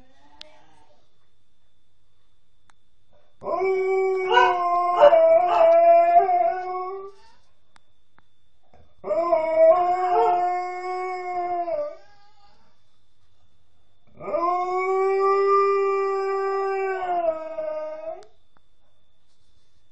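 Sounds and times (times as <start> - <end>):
dog howling: 3.4 - 7.2, 9.0 - 12.3.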